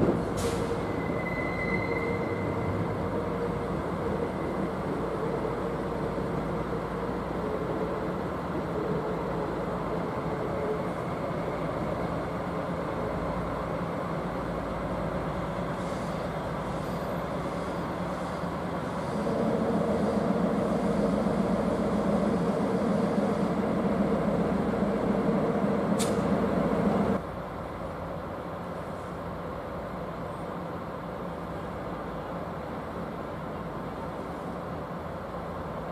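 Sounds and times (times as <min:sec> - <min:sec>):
diesel locomotive engine running: 0:00.0 - 0:35.9.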